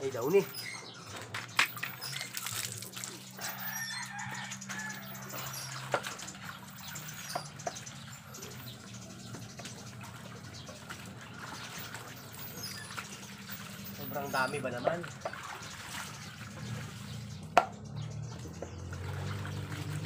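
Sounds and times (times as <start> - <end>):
clothes splashing in water: 1.0 - 7.3, 9.6 - 17.6, 18.3 - 20.0
rooster crowing: 3.4 - 5.7.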